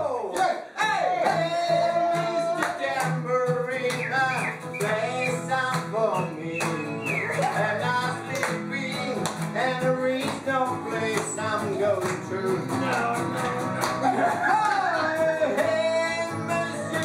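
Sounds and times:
voices singing along: 0:00.0 - 0:17.0
acoustic guitar strumming: 0:00.9 - 0:17.0.

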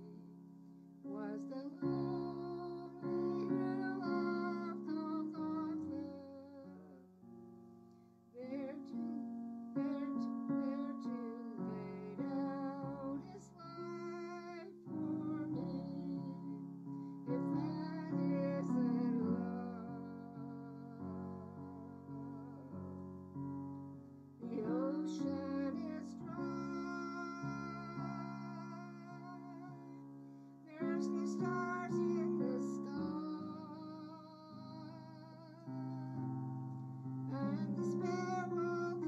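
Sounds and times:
piano chords: 0:00.0 - 0:39.0
woman singing a hymn: 0:01.1 - 0:06.6, 0:08.4 - 0:16.6, 0:24.4 - 0:29.8.

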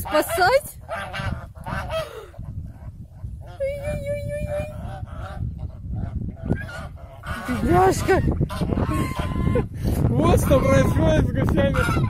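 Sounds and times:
geese honking: 0:00.0 - 0:02.2, 0:06.4 - 0:09.6, 0:11.7 - 0:12.0
steady low rumble: 0:00.7 - 0:11.8.

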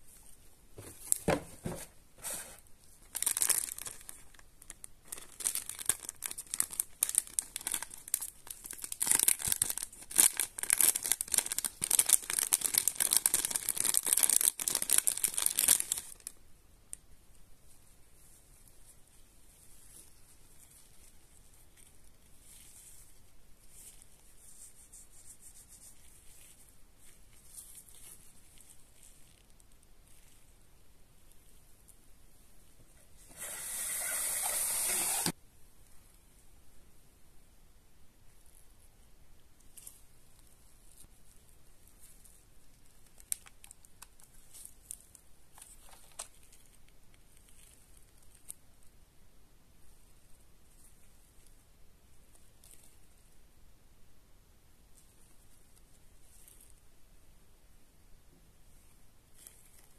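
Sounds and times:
handling rustles: 0:00.0 - 0:02.7
soft cloth rustling: 0:00.0 - 0:04.4, 0:17.3 - 0:36.4, 0:39.6 - 0:48.6, 0:54.9 - 0:56.9, 0:58.6 - 0:59.9.

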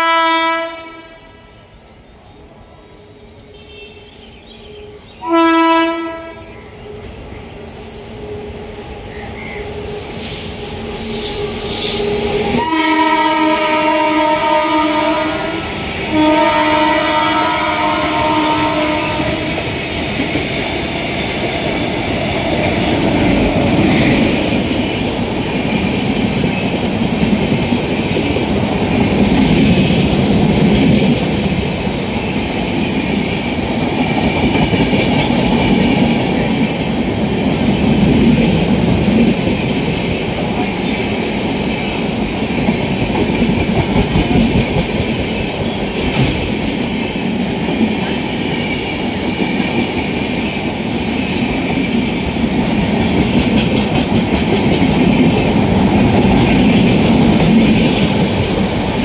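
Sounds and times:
train horn blasts: 0:00.0 - 0:01.4, 0:03.4 - 0:06.6, 0:11.4 - 0:19.7
train rushing past: 0:02.3 - 0:59.0.

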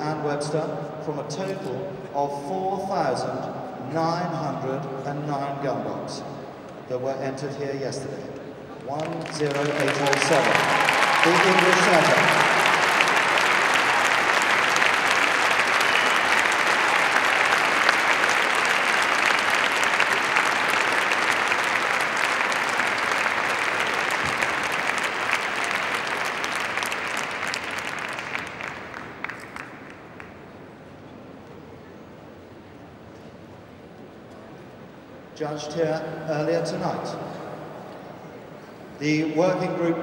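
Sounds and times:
audience applauding: 0:08.8 - 0:30.7.

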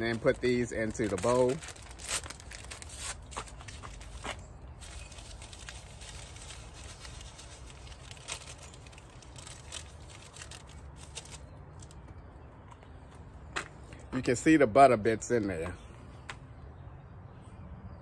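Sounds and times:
paper packets tearing: 0:00.0 - 0:11.9.

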